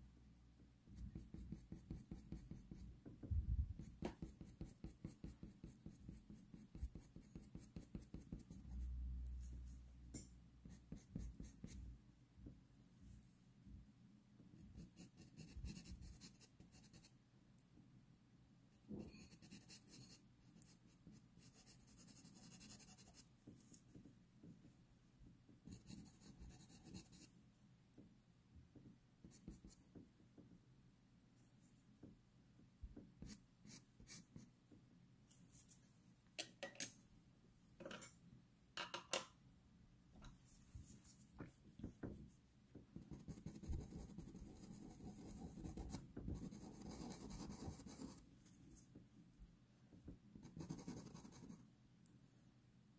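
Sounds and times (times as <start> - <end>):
pencil scratching on paper: 1.0 - 2.9, 3.8 - 8.8, 10.6 - 11.8, 14.6 - 17.1, 19.0 - 23.8, 25.6 - 27.3, 29.2 - 29.8, 43.0 - 48.2, 50.4 - 51.6.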